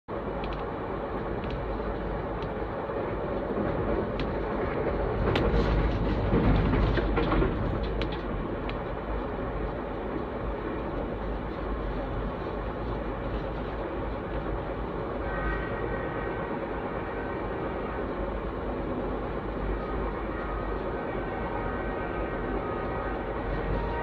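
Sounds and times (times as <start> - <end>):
train rumbling on track: 0.1 - 24.0
sharp clicks of rails: 0.3 - 11.7.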